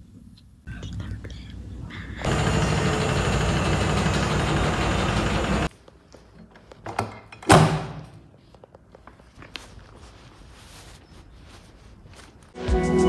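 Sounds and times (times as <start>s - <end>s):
laundry machines running: 2.2s - 5.7s.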